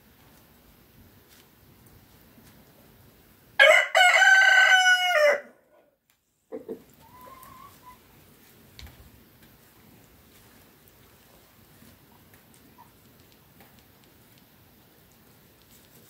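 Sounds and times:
young cockerel crowing: 3.6s - 5.7s.

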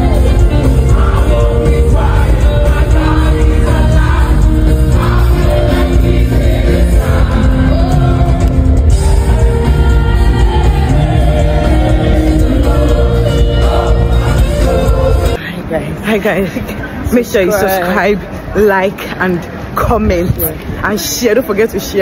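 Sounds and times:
gospel worship music: 0.0s - 15.6s.

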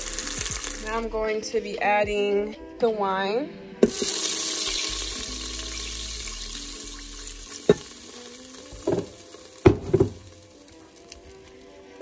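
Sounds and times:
wine sizzling in hot pot: 0.0s - 1.1s, 3.8s - 12.0s.

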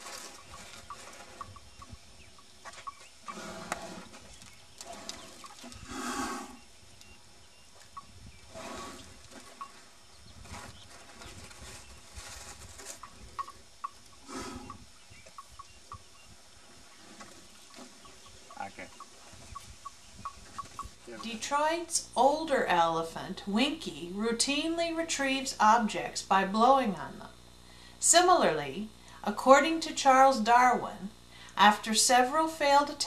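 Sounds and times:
elephants breathing bursts: 5.8s - 6.6s, 14.2s - 14.8s.

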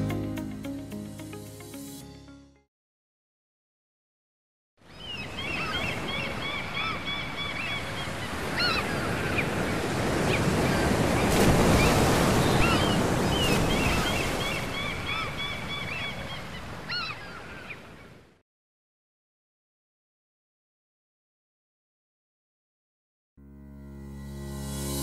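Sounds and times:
sea surf breaking: 5.4s - 16.9s.

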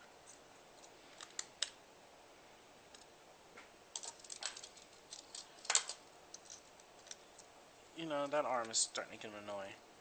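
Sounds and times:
plastic parts clicking and tapping: 4.0s - 7.5s.

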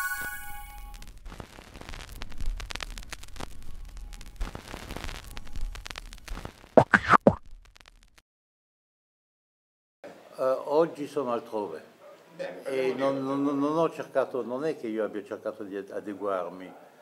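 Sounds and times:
scratchy noisy texture: 0.3s - 8.2s
loud pops: 0.8s - 8.2s.

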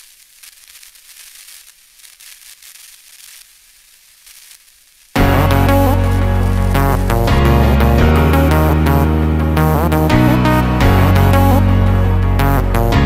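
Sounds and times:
loud music: 5.2s - 13.0s.

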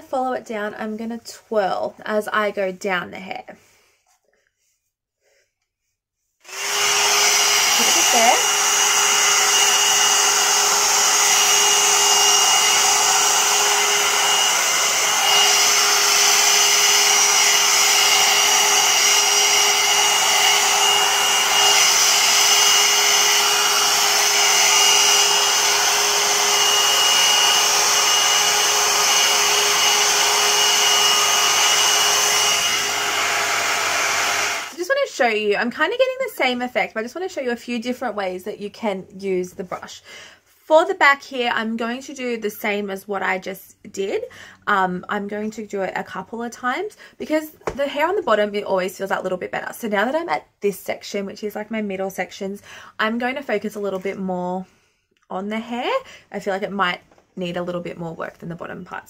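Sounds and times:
hot-air brush fan and motor: 6.4s - 34.8s.

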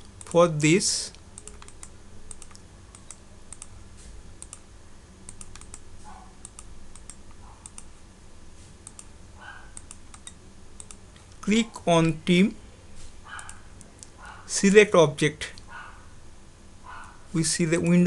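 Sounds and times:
mouse and keyboard clicks: 1.4s - 3.7s, 5.3s - 5.8s, 9.8s - 11.4s.

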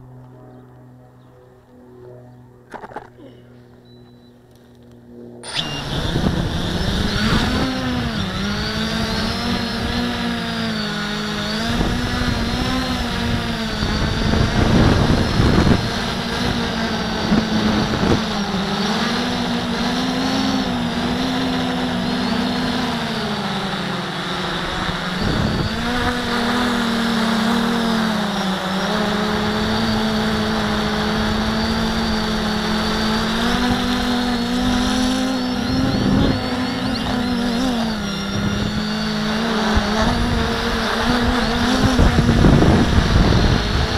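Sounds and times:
drone propellers whining: 0.0s - 43.9s.

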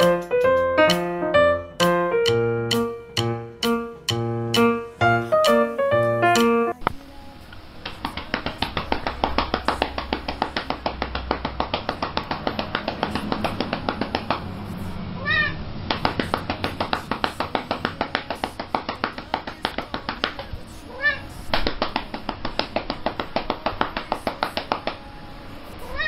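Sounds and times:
hands patting cat: 7.8s - 14.5s, 15.9s - 20.5s
cat meowing: 15.2s - 15.6s, 21.0s - 21.3s.

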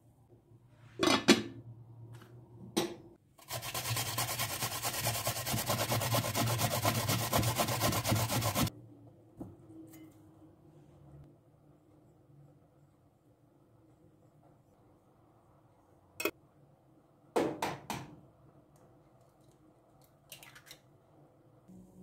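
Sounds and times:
vegetable grating on metal grater: 3.4s - 8.7s.

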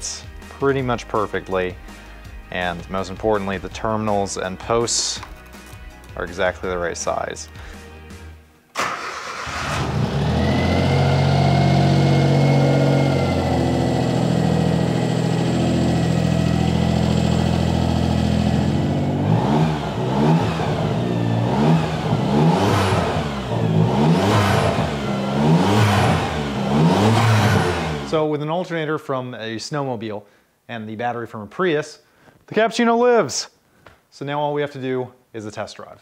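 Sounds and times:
car engine idling and revving: 9.0s - 28.1s.

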